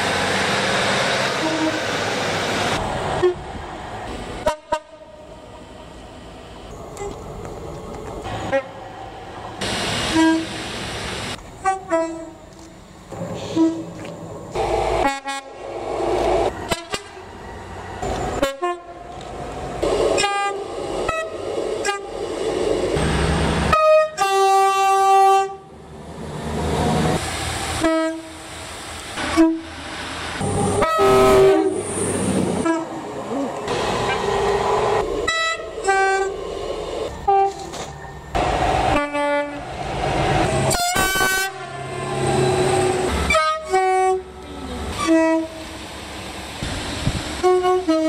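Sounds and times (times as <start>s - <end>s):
train passing close by: 0.0s - 48.0s
two-tone train horn blasts: 1.4s - 1.9s, 4.4s - 5.3s, 8.5s - 8.8s, 10.1s - 10.6s, 11.6s - 12.4s, 13.4s - 14.0s, 15.0s - 15.6s, 16.7s - 17.3s, 18.3s - 19.1s, 20.2s - 22.1s, 23.7s - 25.7s, 27.8s - 28.4s, 29.2s - 29.7s, 30.4s - 31.8s, 32.6s - 33.0s, 35.3s - 36.4s, 37.2s - 37.7s, 38.9s - 39.6s, 40.7s - 45.7s, 47.4s - 48.0s.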